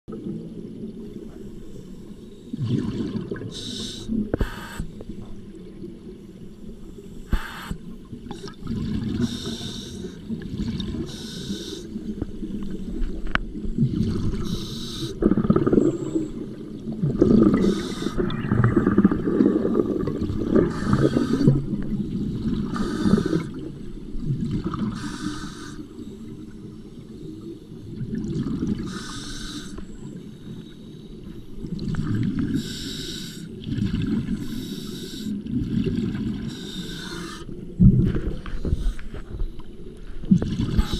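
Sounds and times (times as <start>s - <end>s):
exhaled air bubbling: 0.1s - 30.3s, 31.5s - 40.9s
regulator inhale hiss: 3.5s - 5.2s, 6.8s - 8.6s, 9.2s - 10.3s, 11.1s - 13.2s, 14.4s - 15.2s, 17.6s - 18.4s, 20.7s - 21.7s, 22.7s - 23.6s, 24.9s - 26.3s, 28.8s - 31.6s, 32.5s - 33.6s, 34.4s - 35.4s, 36.5s - 37.6s.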